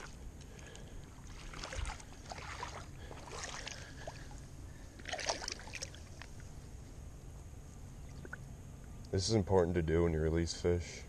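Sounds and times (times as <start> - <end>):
water sloshing and splashing: 0.0 - 6.6, 8.0 - 8.5.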